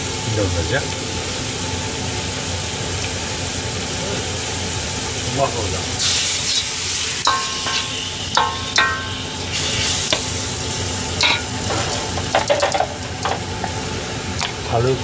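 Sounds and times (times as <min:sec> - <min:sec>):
food sizzling in a wok: 0:00.0 - 0:15.0
metal ladle knocking wok: 0:07.3 - 0:09.4, 0:11.2 - 0:13.4.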